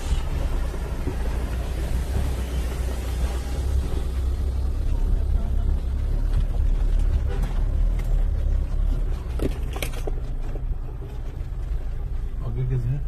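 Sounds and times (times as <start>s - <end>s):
engine rumbling under load: 0.0s - 13.0s.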